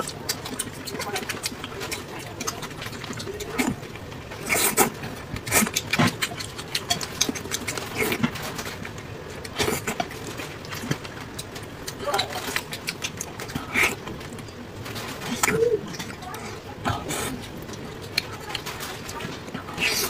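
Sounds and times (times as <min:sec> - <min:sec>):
wet chewing and lip smacking: 0:00.0 - 0:14.6.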